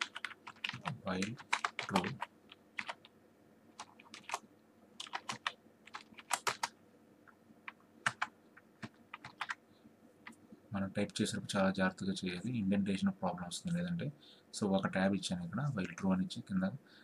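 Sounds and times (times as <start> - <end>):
computer keyboard typing: 0.0 - 3.1, 3.8 - 4.4, 5.0 - 6.8, 7.7 - 9.6.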